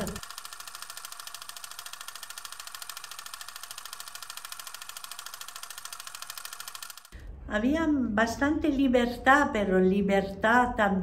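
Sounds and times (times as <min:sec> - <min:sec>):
rapid mechanical ticking clatter: 0:00.0 - 0:07.2.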